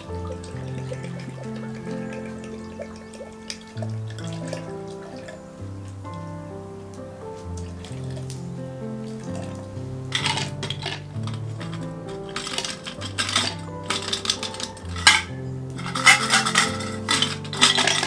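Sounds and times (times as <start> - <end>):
ice cubes clattering into glass jug: 9.4 - 18.0.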